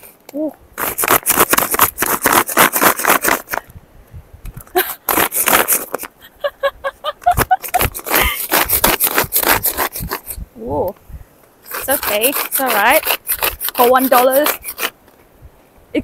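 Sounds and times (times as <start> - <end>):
woman laughing: 4.6 - 5.1, 6.2 - 8.6
blades whirring in plastic bowl: 11.8 - 14.9.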